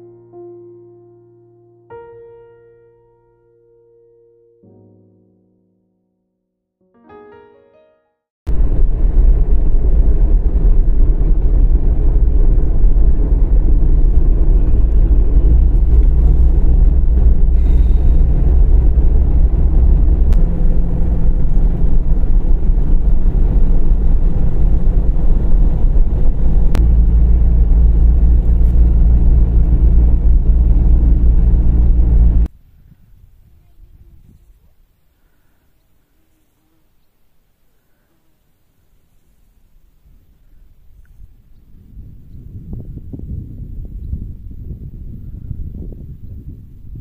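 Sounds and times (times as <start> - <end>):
car engine and tyres rumbling: 8.5 - 32.5.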